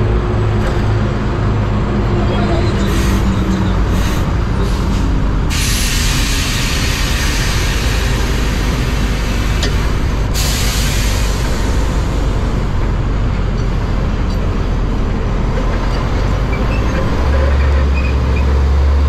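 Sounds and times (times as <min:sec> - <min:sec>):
truck rumbling: 0:00.0 - 0:19.0
loud hiss: 0:05.5 - 0:12.4.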